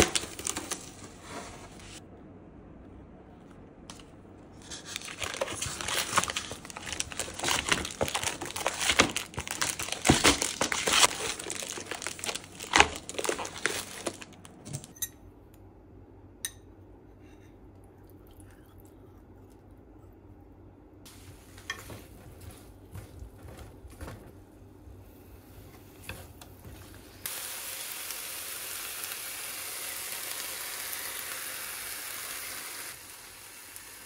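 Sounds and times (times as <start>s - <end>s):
plastic packs crinkling and clicking: 0.0s - 1.1s, 4.9s - 14.9s.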